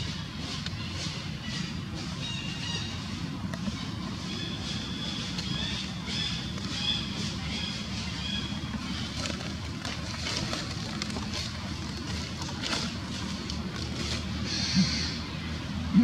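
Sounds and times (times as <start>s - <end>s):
faint clicks and rustles: 8.5s - 14.4s.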